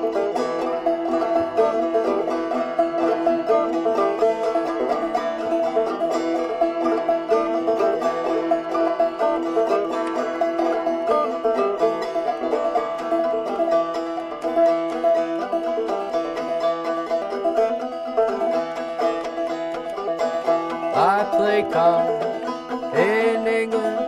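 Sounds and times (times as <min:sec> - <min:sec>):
banjo playing a picked tune: 0:00.0 - 0:24.0
man singing: 0:20.9 - 0:24.0.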